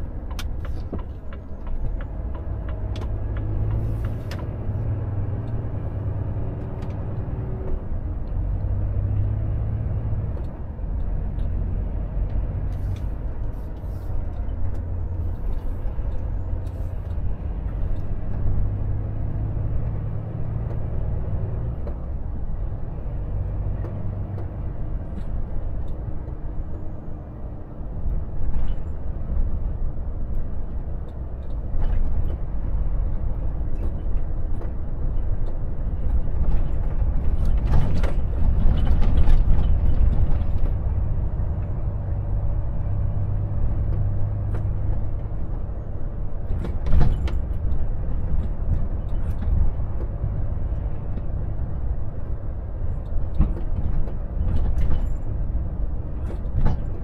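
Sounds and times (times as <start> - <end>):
truck engine and road noise: 0.0 - 57.0
knocks and clatters: 33.8 - 40.8, 46.5 - 50.2, 53.0 - 55.3, 56.2 - 57.0.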